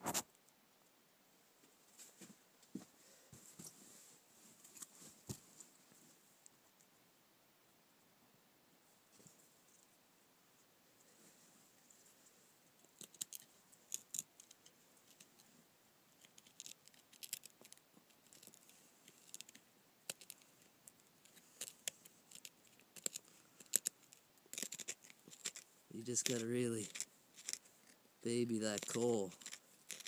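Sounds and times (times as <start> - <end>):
knife scraping dry fungus: 21.2 - 30.0.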